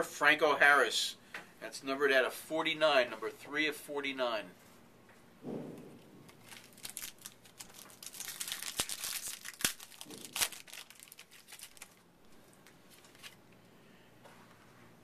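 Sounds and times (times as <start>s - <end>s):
card pack wrapper tearing and crinkling: 6.3s - 12.1s, 12.9s - 13.4s.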